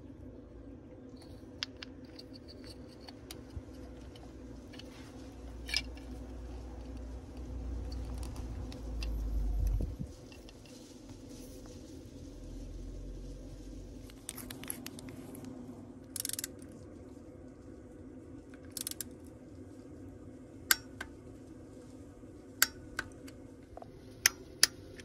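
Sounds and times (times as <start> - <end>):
low hum: 0.0 - 25.0
ratchet wrench clicking: 16.1 - 16.6, 18.6 - 19.1.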